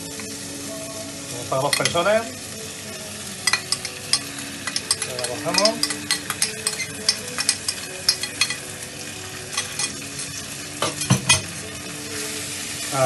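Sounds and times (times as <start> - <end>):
vegetables sizzling in a pot: 0.0 - 13.0
utensil scraping and tapping pot: 3.4 - 8.7, 9.5 - 11.5
loud knocks on pot: 10.8 - 11.4.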